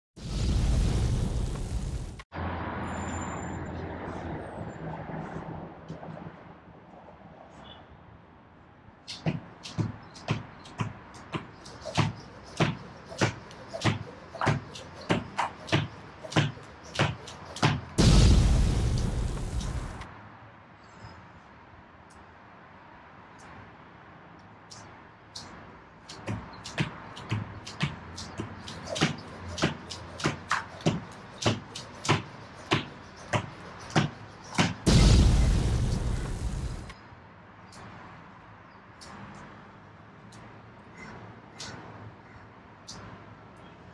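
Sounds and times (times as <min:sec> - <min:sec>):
jump rope clacking on tiles: 0:09.1 - 0:18.0, 0:26.1 - 0:34.9
sudden loud burst of noise: 0:18.0 - 0:20.0, 0:34.9 - 0:36.9
loud rushing noise: 0:18.0 - 0:20.1, 0:34.8 - 0:37.0
jump rope beads clicking on tiles: 0:24.8 - 0:34.9.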